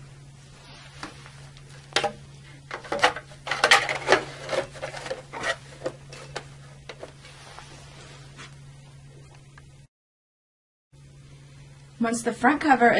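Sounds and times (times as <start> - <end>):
plastic cover knocking and clicking: 2.0 - 5.2.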